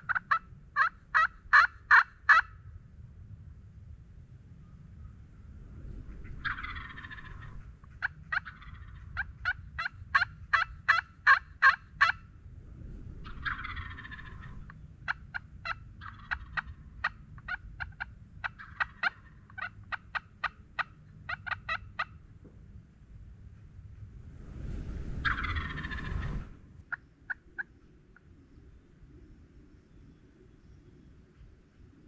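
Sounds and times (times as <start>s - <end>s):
turkey gobbling: 0.0s - 2.5s, 6.4s - 12.2s, 13.2s - 22.2s, 25.2s - 27.7s.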